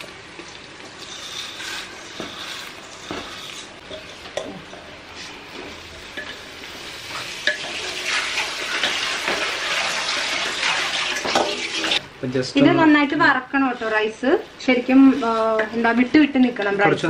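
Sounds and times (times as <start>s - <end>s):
rice sizzling in a pot: 0.0s - 12.0s
spatula scraping a pot: 1.0s - 4.2s.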